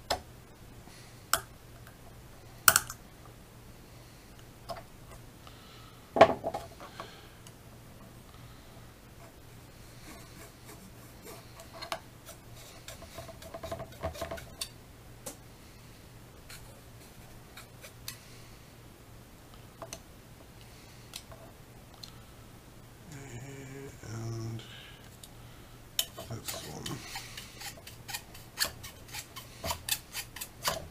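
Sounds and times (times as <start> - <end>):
saw and knife scraping plastic: 26.1 - 30.9.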